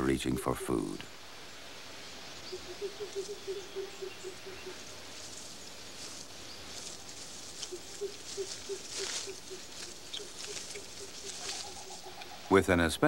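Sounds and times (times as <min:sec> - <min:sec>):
leaves rustling: 0:00.0 - 0:13.0
lemur chewing clicks: 0:07.6 - 0:12.4.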